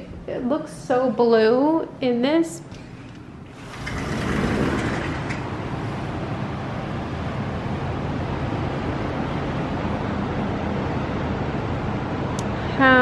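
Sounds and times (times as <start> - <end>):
traffic rumble: 0.0 - 13.0
sliding glass door opening: 2.7 - 6.6
wind: 3.1 - 12.8.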